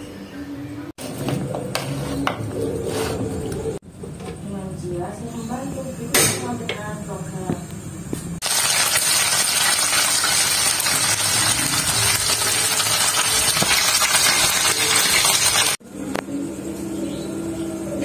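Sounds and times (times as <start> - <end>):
fish sizzling in hot oil: 8.4 - 15.8.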